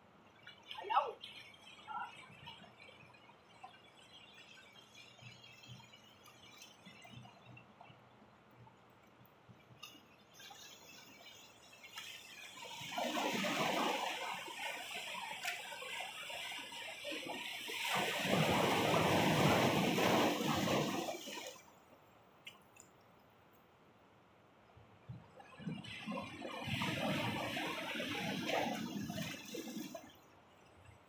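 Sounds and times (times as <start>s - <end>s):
sea waves washing over boulders: 9.8s - 21.7s, 25.1s - 30.8s.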